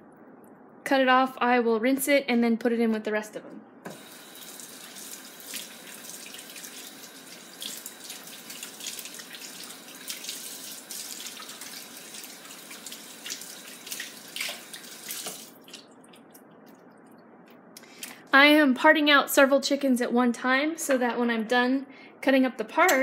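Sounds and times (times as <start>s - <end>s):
tap running into steel sink: 3.9s - 4.1s
water splashing on meat: 3.9s - 16.4s.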